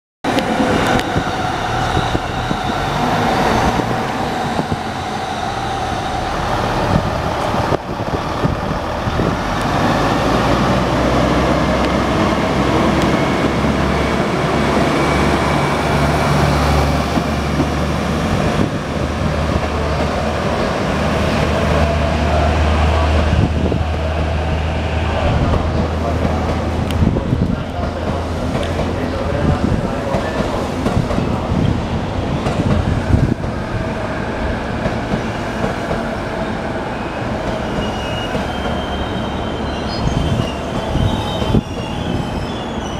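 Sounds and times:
train wheels on rails: 0.2 - 42.9
diesel train engine drone: 0.3 - 42.9.

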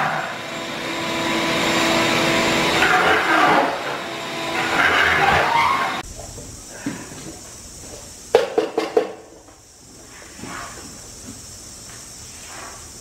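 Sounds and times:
shop vac suction: 0.0 - 6.0, 9.9 - 13.0.

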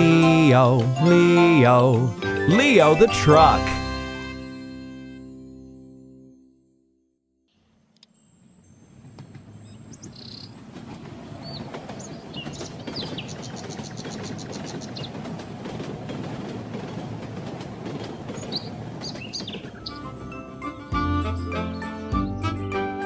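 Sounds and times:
birds chirping and trilling: 1.4 - 4.1, 8.7 - 15.4, 16.6 - 22.4.

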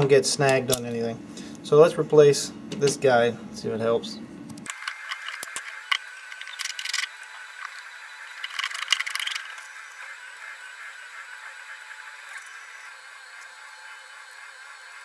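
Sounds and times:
plastic parts clicking and rattling: 4.7 - 9.7.

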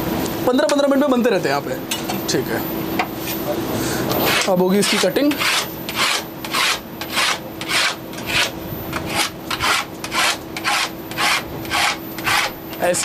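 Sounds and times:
knife scraping through food: 4.2 - 12.6.

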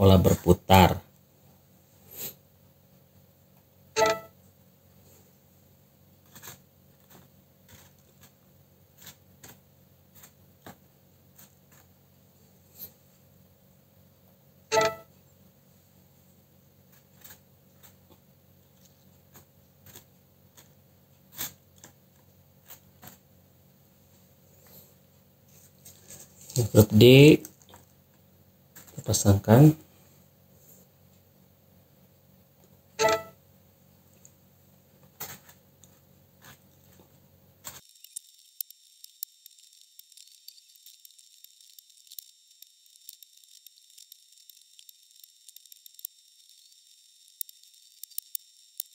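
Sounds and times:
short pitched beep: 4.0 - 4.3, 14.7 - 15.1, 33.0 - 33.4
faint hiss and crackle: 34.0 - 48.9.

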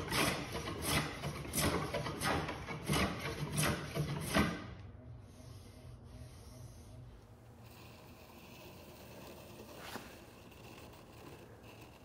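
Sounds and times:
hand tool strokes on wood: 5.4 - 12.0.

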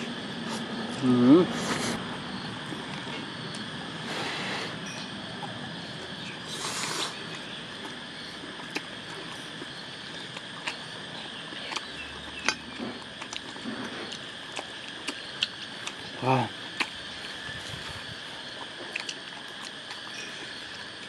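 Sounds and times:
outdoor background hiss: 0.0 - 21.0
chewing: 4.6 - 21.0.

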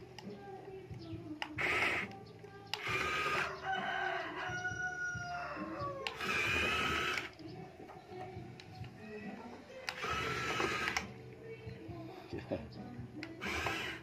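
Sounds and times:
toy electric motor whirring: 1.0 - 4.4, 5.6 - 7.5, 9.8 - 11.2, 12.8 - 14.0.

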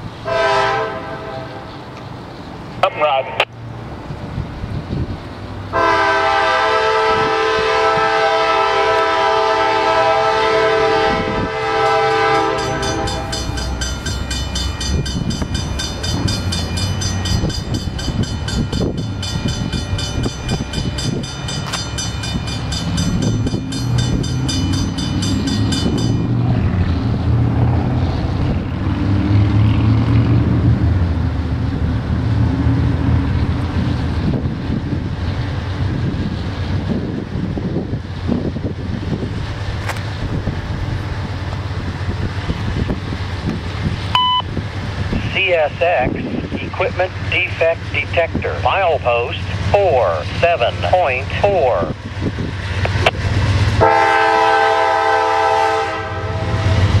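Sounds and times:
diesel locomotive rumbling past: 0.0 - 57.0
locomotive air horn: 0.2 - 1.7, 5.7 - 13.6, 53.8 - 57.0.

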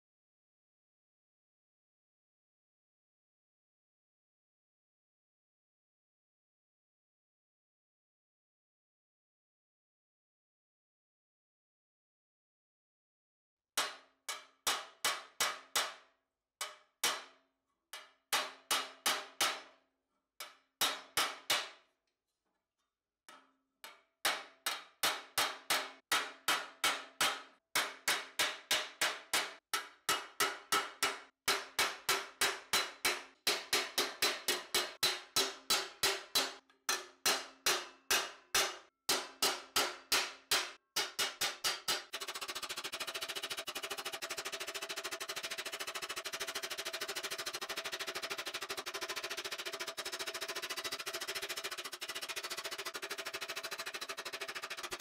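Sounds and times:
hammer striking steel: 13.8 - 17.4, 18.0 - 19.8, 20.4 - 21.8, 24.3 - 55.0.

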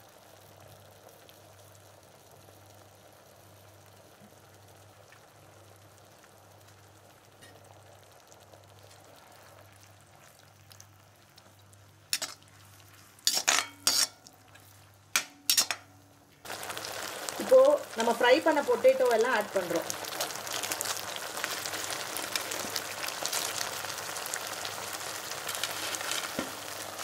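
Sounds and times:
metal scraping and knocking on pan: 12.2 - 12.4, 13.3 - 14.2, 15.1 - 16.0, 26.1 - 26.5.

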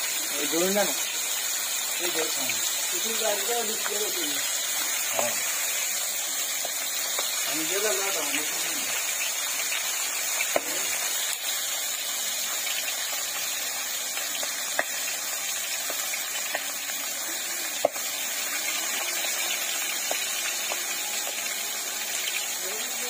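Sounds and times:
fish sizzling in hot oil: 0.0 - 23.0
oil popping: 3.7 - 7.7, 8.4 - 22.6.

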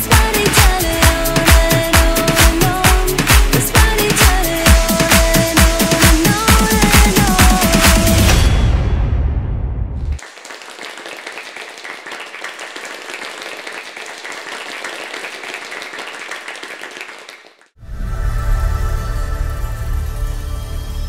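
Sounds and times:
dance music: 0.0 - 8.8
audience applauding: 10.2 - 17.8.

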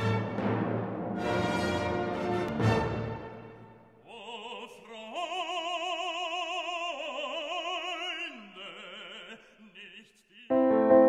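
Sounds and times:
operatic singing: 3.9 - 11.0.

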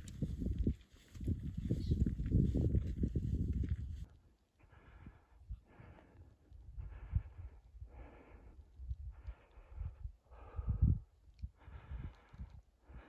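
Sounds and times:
person breathing hard: 4.6 - 13.0.

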